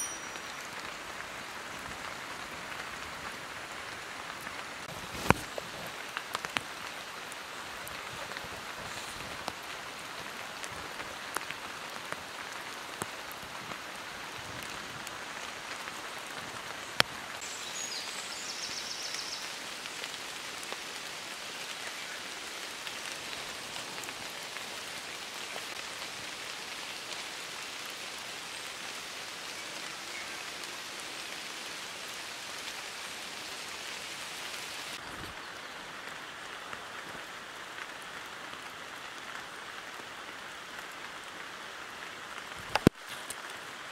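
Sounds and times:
brief high chirp: 0.0s - 0.5s
rain falling on leaves: 0.0s - 43.9s.

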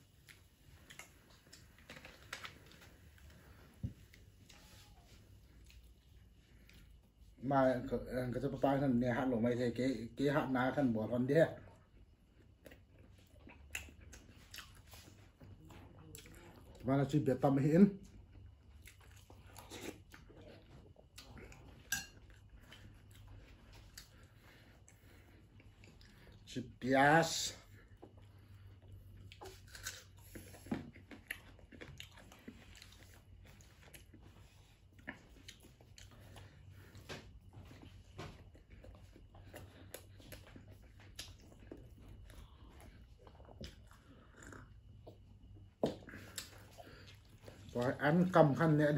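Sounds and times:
soft chewing: 0.0s - 8.8s, 10.4s - 48.9s
low steady hum: 0.0s - 48.9s
chewing eggs: 27.7s - 48.4s.

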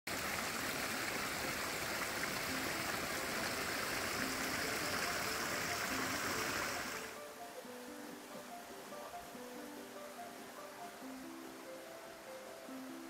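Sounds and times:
stream of water running: 0.1s - 13.0s.

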